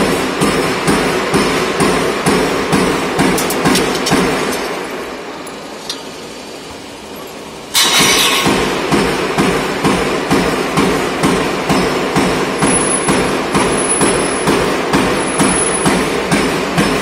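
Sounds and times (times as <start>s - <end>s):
roll forming machine running: 0.0s - 17.0s
metal punch stamping clack: 0.4s - 4.9s.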